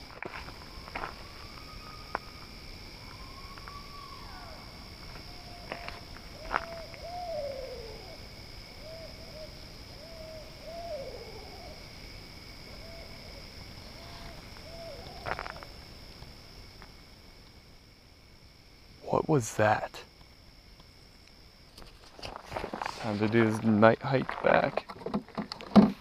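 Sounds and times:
owl hooting: 0:03.0 - 0:11.8, 0:12.7 - 0:15.7.

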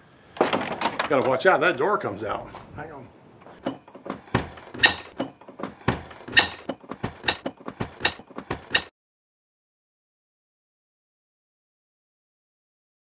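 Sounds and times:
doorknob latch rattling and squeaking: 0:00.4 - 0:01.4, 0:03.6 - 0:08.9.

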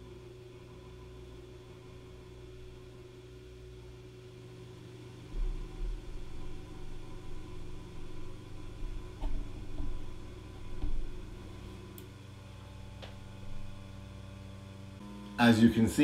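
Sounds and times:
steady hum: 0:00.0 - 0:16.0
printer motors rumbling: 0:05.3 - 0:12.0.

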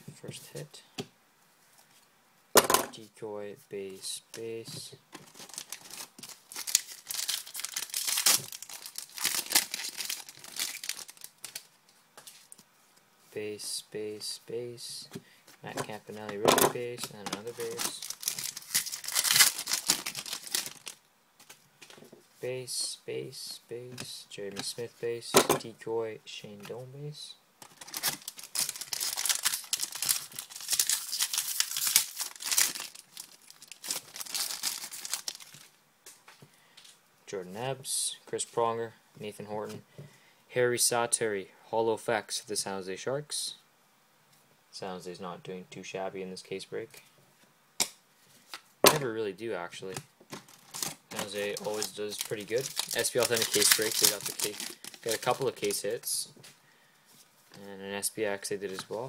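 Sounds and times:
foil wrapper crinkling: 0:05.2 - 0:12.6, 0:17.1 - 0:21.6, 0:27.6 - 0:35.8, 0:50.3 - 0:55.9.

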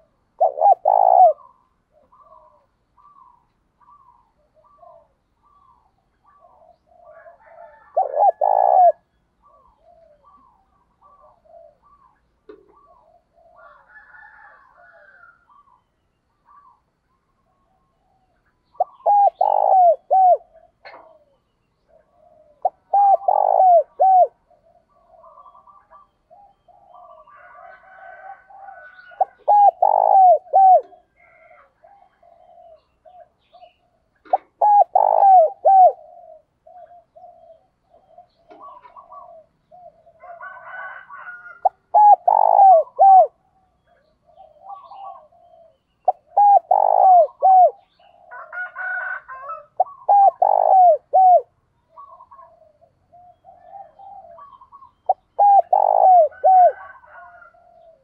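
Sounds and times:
birds chirping: 0:00.0 - 0:14.5, 0:15.2 - 0:40.9, 0:41.7 - 0:48.4, 0:49.5 - 0:58.0
dove cooing: 0:00.0 - 0:15.8, 0:16.4 - 0:16.8, 0:17.5 - 0:58.0.

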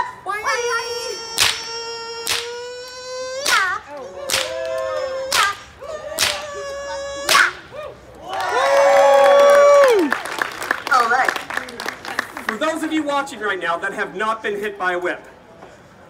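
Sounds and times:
whip cracking: 0:01.3 - 0:06.6, 0:07.3 - 0:07.6.

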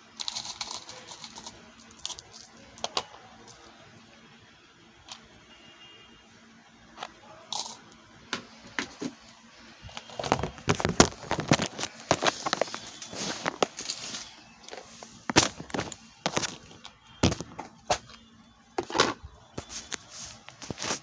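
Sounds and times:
metal charms clinking in plastic box: 0:00.2 - 0:03.6.

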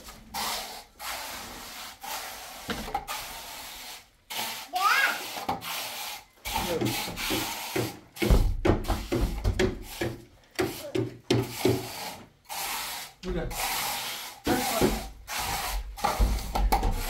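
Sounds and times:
scraping mortar on stone floor: 0:00.0 - 0:08.3, 0:09.0 - 0:17.0.

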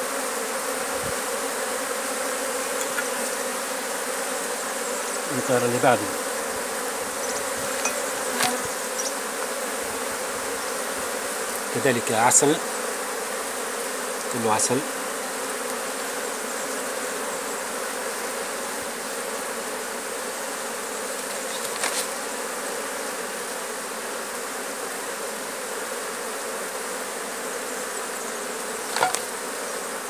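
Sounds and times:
honeybees buzzing: 0:00.0 - 0:30.0.

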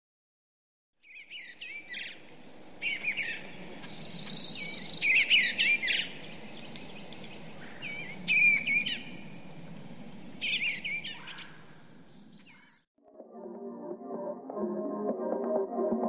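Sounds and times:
songbird warbling: 0:01.0 - 0:12.8
steady low background hum: 0:01.5 - 0:12.3.

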